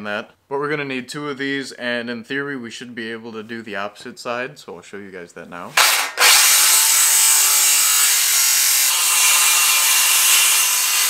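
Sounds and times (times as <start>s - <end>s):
circular saw cutting wood: 5.8s - 11.0s.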